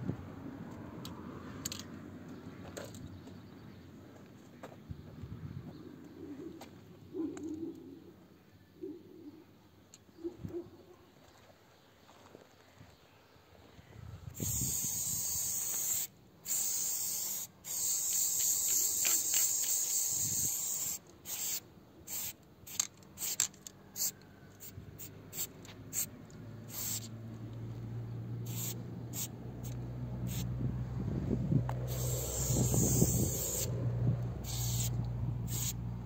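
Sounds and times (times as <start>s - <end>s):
aerosol spray can hissing: 14.4s - 22.4s, 26.7s - 27.1s, 28.5s - 30.5s, 31.9s - 33.7s, 34.4s - 35.8s.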